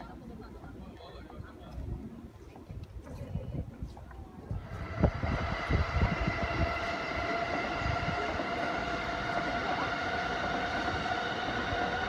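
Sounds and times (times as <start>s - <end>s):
train rumbling on tracks: 4.4s - 12.0s
traction motors whining: 4.5s - 12.0s.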